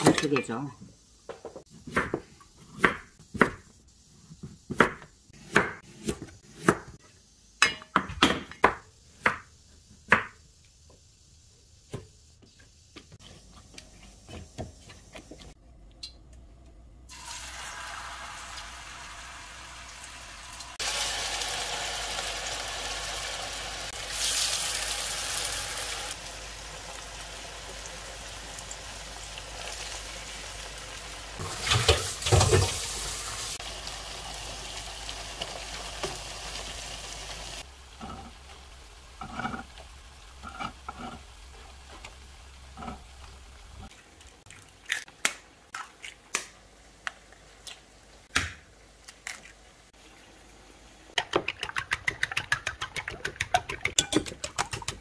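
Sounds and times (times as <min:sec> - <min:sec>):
food sizzling in oil: 0:17.1 - 0:43.9.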